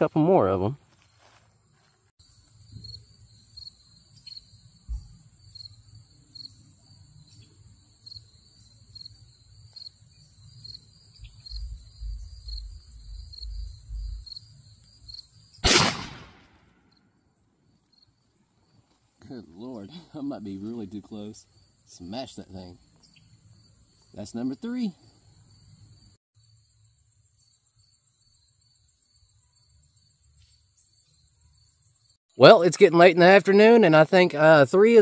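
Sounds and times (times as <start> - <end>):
insects chirping: 0.1 - 32.2
shotgun shot: 15.6 - 16.9.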